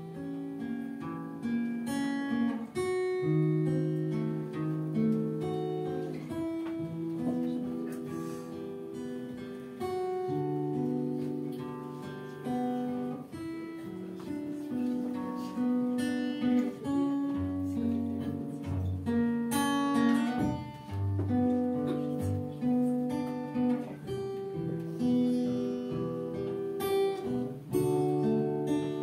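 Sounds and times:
strummed acoustic guitar: 0.0 - 29.0.

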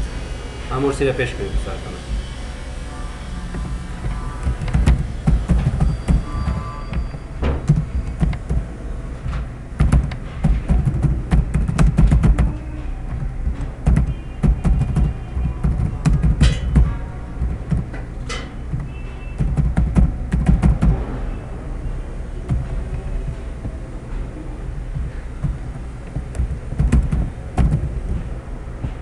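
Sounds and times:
low hum: 0.0 - 29.0
keyboard keys clicking: 9.8 - 17.9, 18.7 - 21.0, 25.4 - 28.0.

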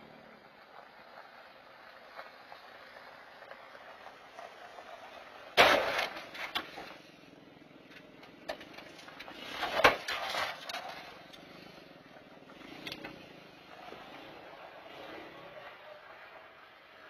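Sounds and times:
vehicle crash crunch: 0.0 - 17.0
rattles after crash: 3.5 - 7.1, 7.9 - 11.8.

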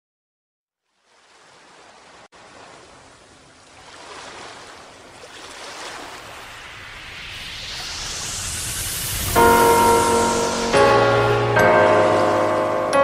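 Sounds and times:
steady rushing hiss: 5.9 - 13.0.

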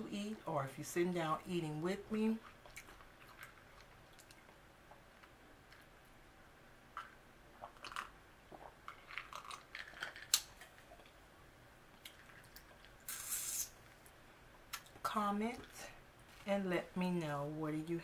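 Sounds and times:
sipping and gulping: 7.0 - 11.1.

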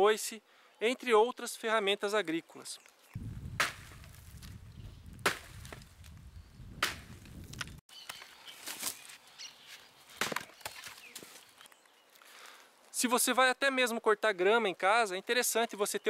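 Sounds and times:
hatchet chopping wood: 3.6 - 4.0, 5.2 - 5.8, 6.8 - 7.8, 10.2 - 10.9.

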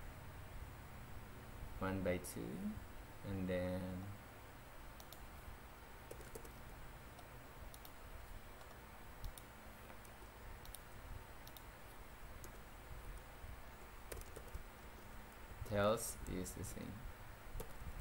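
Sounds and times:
keyboard and mouse clicks: 5.0 - 5.2, 6.1 - 8.0, 8.6 - 11.7, 12.4 - 12.6, 14.1 - 14.6, 17.6 - 17.8.

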